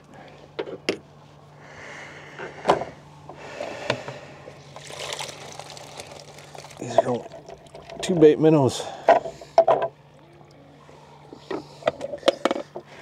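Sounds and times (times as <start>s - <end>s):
faint low hum: 0.0s - 13.0s
hands rustling in bucket: 4.7s - 7.4s.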